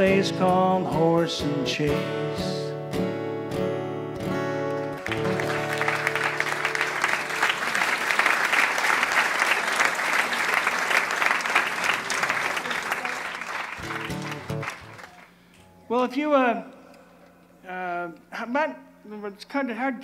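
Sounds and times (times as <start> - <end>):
acoustic guitar chord ringing: 0.0 - 7.6
audience applauding: 4.7 - 15.4.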